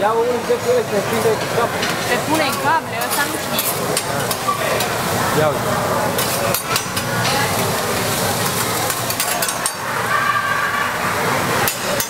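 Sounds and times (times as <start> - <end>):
food sizzling on a griddle: 2.0 - 11.9
metal spatulas scraping and clacking: 6.2 - 7.6, 8.4 - 11.0.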